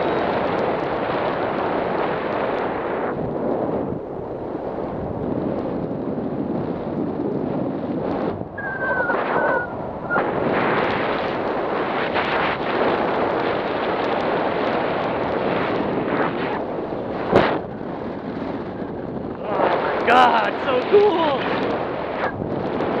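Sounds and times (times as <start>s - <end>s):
wind buffeting microphone: 0.0s - 23.0s
high whistle-like tones: 8.6s - 10.3s.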